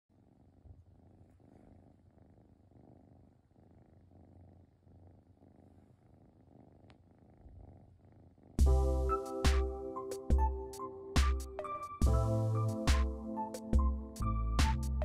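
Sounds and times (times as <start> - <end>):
kitten purring: 0.1 - 8.7.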